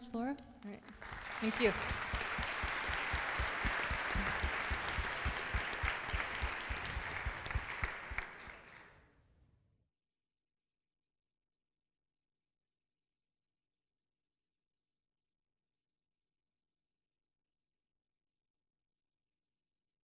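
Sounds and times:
audience applauding: 0.8s - 8.9s.

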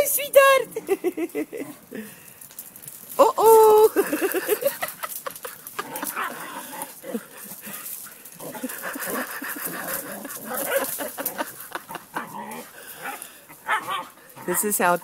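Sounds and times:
paws on stone paving: 1.6s - 15.0s.

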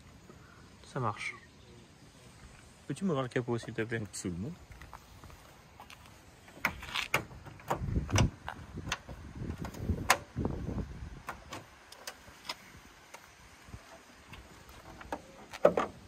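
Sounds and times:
car bonnet rattling: 6.4s - 10.4s, 13.9s - 16.0s.

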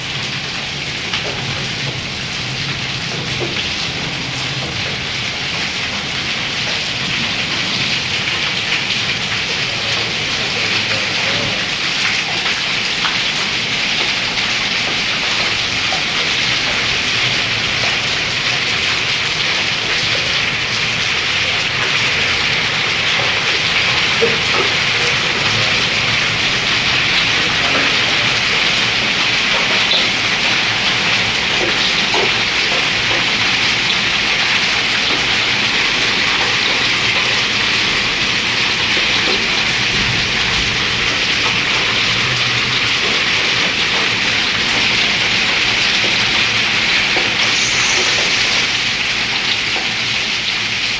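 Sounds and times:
rain and hail on concrete: 0.0s - 50.9s.

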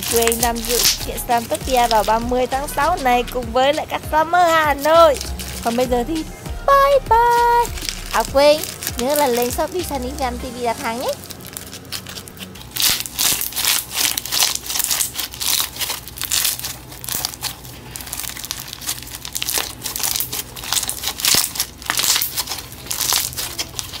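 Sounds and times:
beaded slime crackling: 0.0s - 24.0s.

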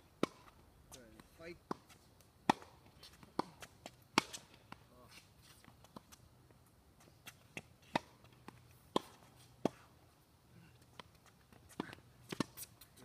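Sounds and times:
tennis balls hitting racquet: 0.2s - 10.1s, 10.7s - 13.0s
balls bouncing on hard court: 1.1s - 4.8s.

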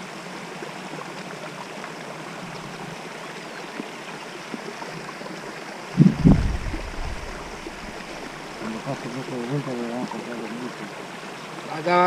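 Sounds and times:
rushing water: 0.0s - 12.0s
loud low bump: 6.0s - 8.6s.

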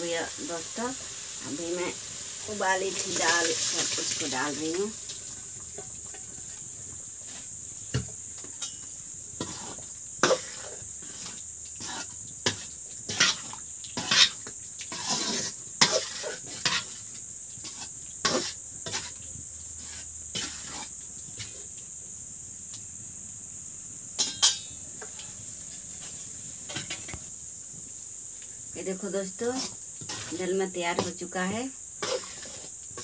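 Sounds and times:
crickets chirring: 0.0s - 33.0s
ladle scraping metal pan: 9.4s - 17.0s, 32.0s - 32.7s.

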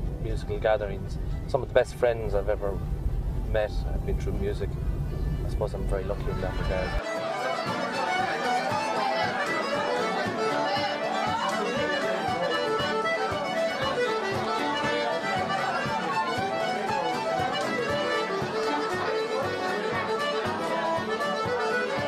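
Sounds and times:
fiddle: 0.0s - 22.0s
button accordion playing lively tune: 6.2s - 22.0s.

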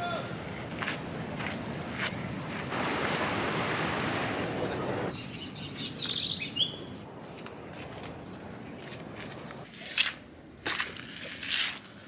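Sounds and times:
sea surf rushing: 2.7s - 5.2s
bird chirping: 5.1s - 7.0s.

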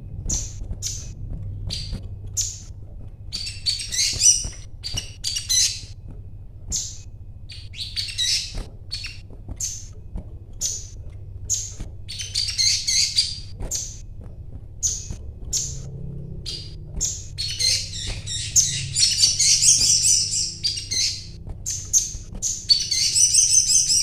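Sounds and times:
sunbird twittering: 0.0s - 6.0s, 6.7s - 10.0s, 10.6s - 14.1s, 14.8s - 24.0s
sunbird chirping: 3.3s - 6.0s, 6.7s - 9.9s, 10.6s - 14.0s, 14.8s - 24.0s.

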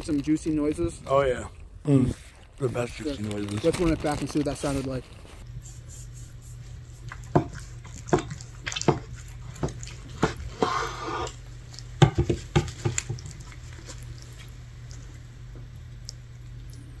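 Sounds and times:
hissing smear: 4.6s - 7.2s, 10.5s - 11.4s
wet squelches of meat cutting: 5.5s - 17.0s.

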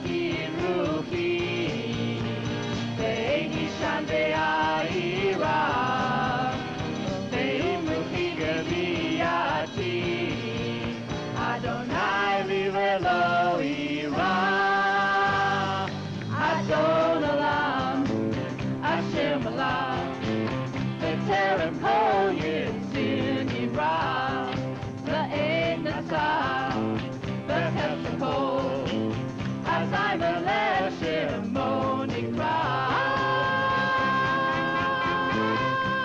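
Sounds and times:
drums: 0.0s - 36.0s
electric guitars: 0.0s - 36.0s
keyboard: 0.0s - 36.0s
tambourine: 0.0s - 36.0s
person singing: 29.8s - 36.0s.

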